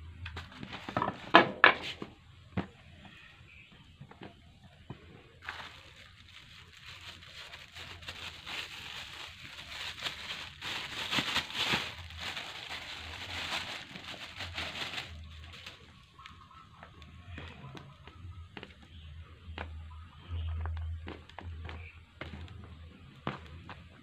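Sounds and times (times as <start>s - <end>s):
plastic bag crinkling: 5.4s - 17.8s.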